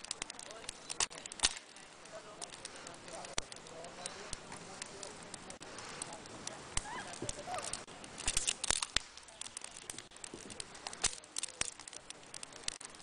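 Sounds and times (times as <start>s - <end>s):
driftwood cracking and snapping: 0.0s - 13.0s.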